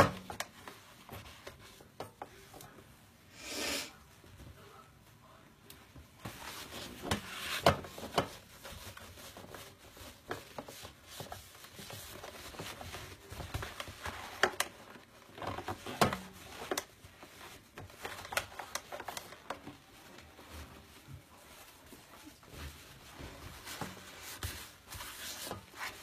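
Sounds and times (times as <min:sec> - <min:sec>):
cloth scrubbing plastic: 0:06.2 - 0:26.0.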